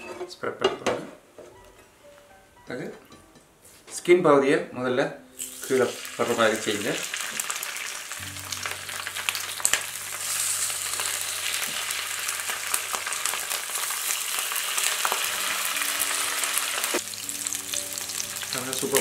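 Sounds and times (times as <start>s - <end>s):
fish sizzling in hot oil: 5.4s - 19.0s.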